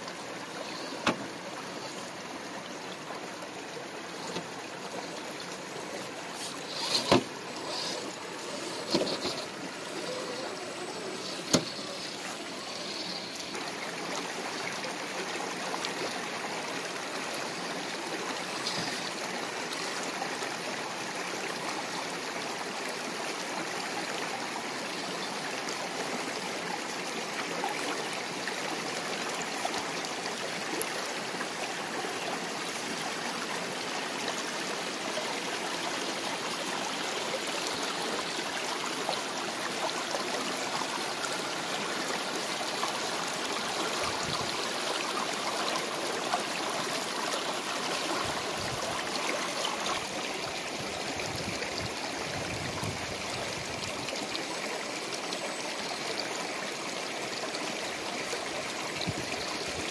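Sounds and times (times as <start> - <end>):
creek water running over rocks: 0.0 - 59.9.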